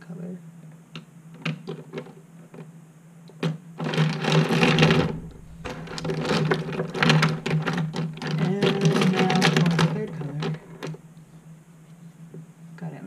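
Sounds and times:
steady low hum: 0.0s - 13.0s
pens clattering together: 3.8s - 11.0s.

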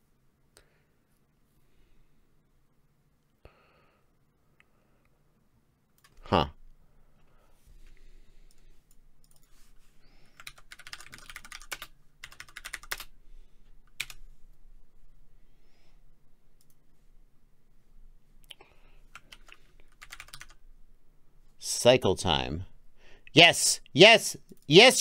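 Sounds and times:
typing on computer keyboard: 10.3s - 13.1s, 13.9s - 14.2s, 19.1s - 20.6s.

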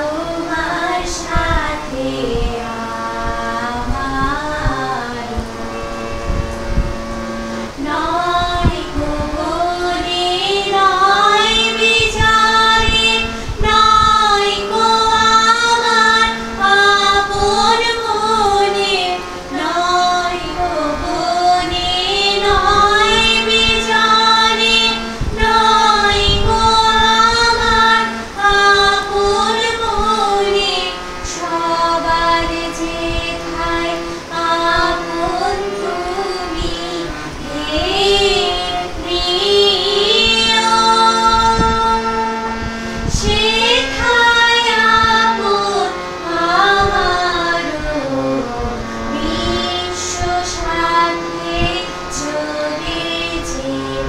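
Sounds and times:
woman singing slow melody: 0.0s - 5.8s, 7.7s - 54.0s
low drone note: 0.2s - 31.2s, 32.0s - 54.0s.

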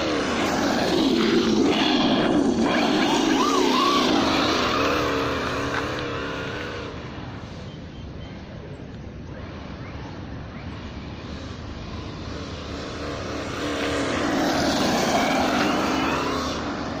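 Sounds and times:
tyres on loose gravel: 0.0s - 7.0s
simulated engine revving: 0.0s - 7.4s, 10.8s - 17.0s.

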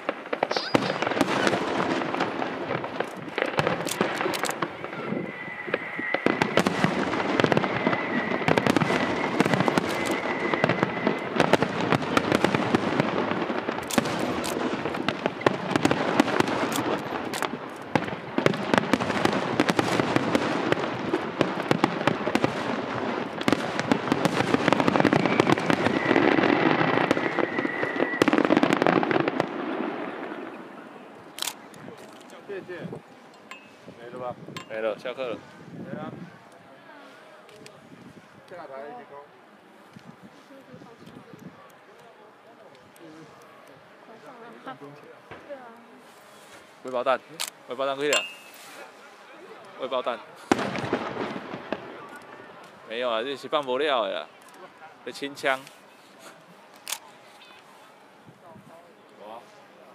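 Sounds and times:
fireworks bangs and crackling: 0.0s - 36.4s, 44.2s - 57.7s.

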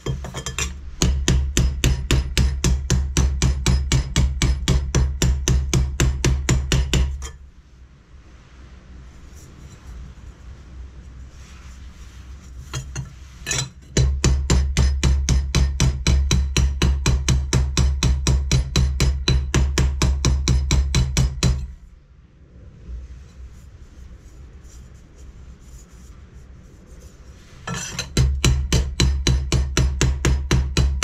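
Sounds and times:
mallet hammering sheet steel: 0.0s - 7.4s, 12.7s - 21.8s, 27.7s - 31.0s.

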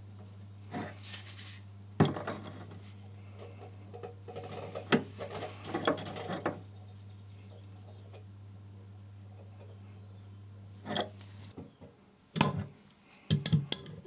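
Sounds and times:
steady low hum: 0.0s - 14.0s
spanner knocking and scraping on nut: 3.4s - 6.7s.

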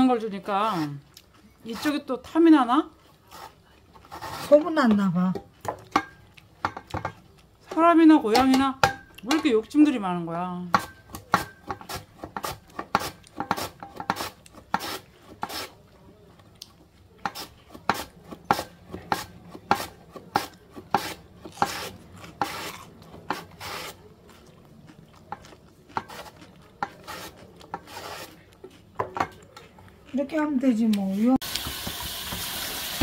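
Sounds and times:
potato shredded on mandoline: 11.2s - 15.8s, 17.2s - 24.4s, 25.3s - 28.8s.

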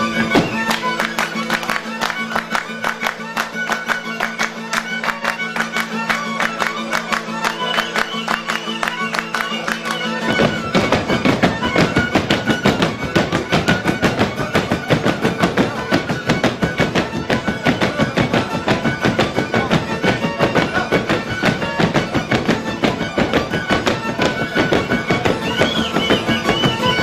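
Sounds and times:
fast folk violin tune: 0.0s - 27.0s
hand claps and beats: 0.1s - 27.0s.

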